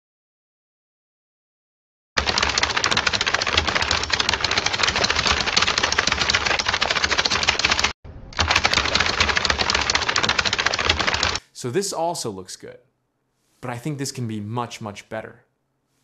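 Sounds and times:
money counting machine riffling: 2.2s - 11.4s.

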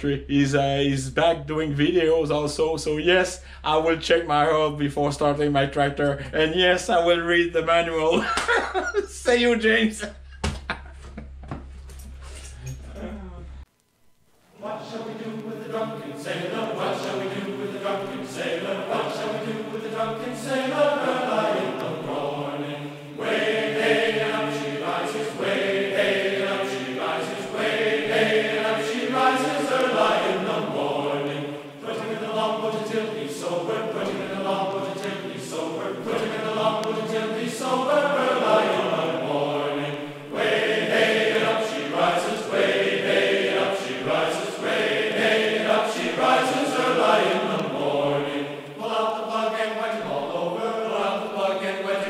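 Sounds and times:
song with voices singing: 14.5s - 52.0s.

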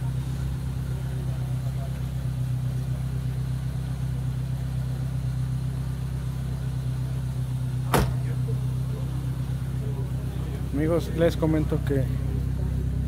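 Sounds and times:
car engine idling: 0.0s - 13.0s
sharp knock: 7.9s - 8.2s.

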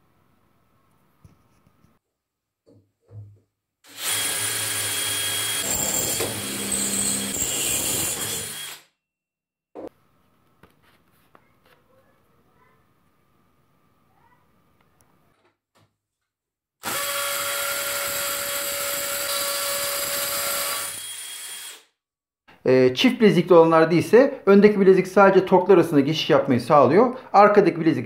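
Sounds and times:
drill boring into steel: 3.9s - 8.9s, 16.8s - 21.9s.

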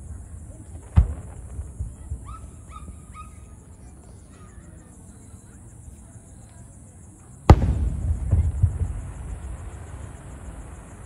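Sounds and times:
faint firework pops: 0.6s - 2.5s, 7.5s - 10.9s
firework boom: 0.8s - 2.3s, 7.5s - 11.0s.

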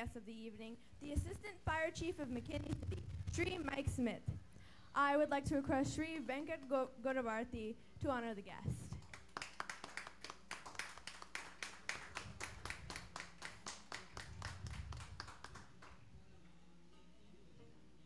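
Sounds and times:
hands clapping: 8.9s - 16.1s.

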